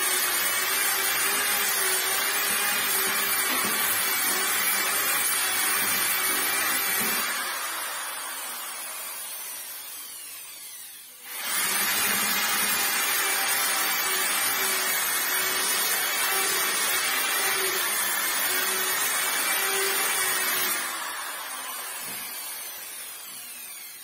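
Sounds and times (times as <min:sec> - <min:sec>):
orbital sander whirring: 0:03.0 - 0:24.0.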